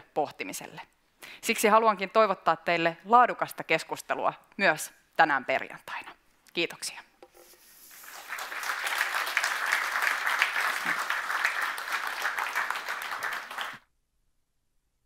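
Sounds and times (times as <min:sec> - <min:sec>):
audience applauding: 0:07.9 - 0:13.8.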